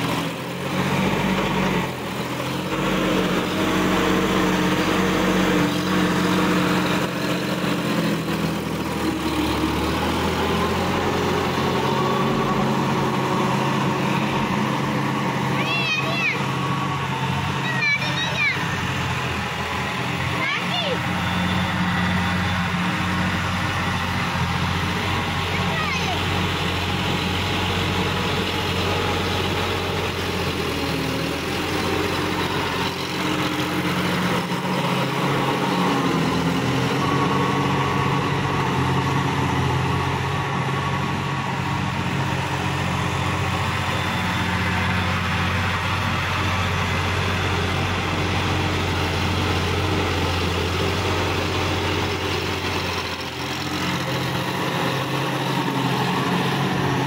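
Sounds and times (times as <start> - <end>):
tractor diesel engine running: 0.0 - 57.0
rotary tiller in soil: 23.7 - 57.0.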